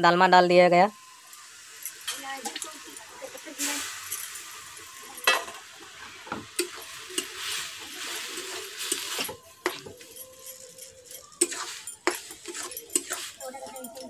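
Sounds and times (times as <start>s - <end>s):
metal spatula scraping pan: 1.8s - 14.0s
spatula clinking on pan: 3.9s - 5.6s, 6.3s - 14.0s.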